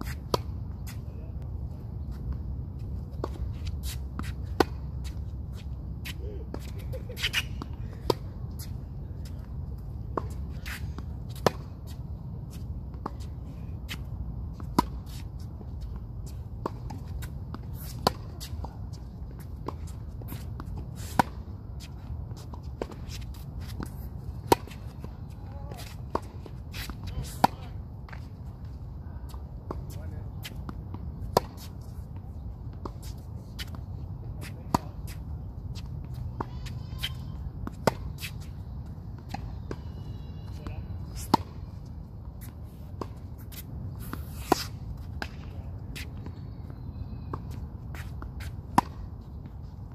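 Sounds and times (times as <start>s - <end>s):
rackets hitting tennis ball: 12.8s - 28.4s, 47.3s - 49.6s.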